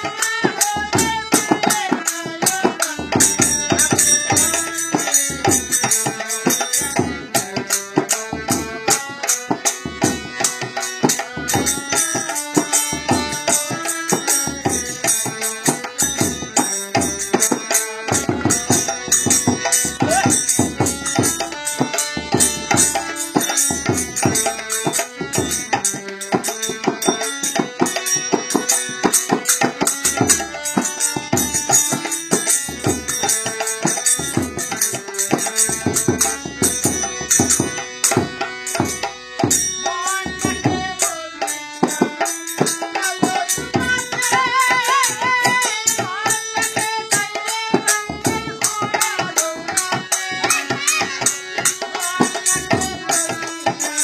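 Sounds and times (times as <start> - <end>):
person singing: 0.0 - 5.2, 39.8 - 54.0
hand drum beat: 0.0 - 39.6, 41.8 - 46.3, 46.9 - 53.4
harmonium chords: 0.0 - 54.0.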